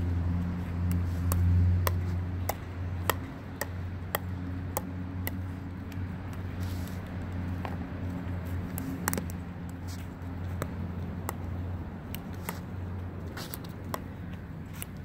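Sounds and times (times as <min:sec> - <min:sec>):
ball bouncing on asphalt: 0:00.0 - 0:15.0
steady low hum: 0:00.0 - 0:15.0
paddles tapping plastic ball: 0:00.4 - 0:06.6, 0:07.5 - 0:15.0.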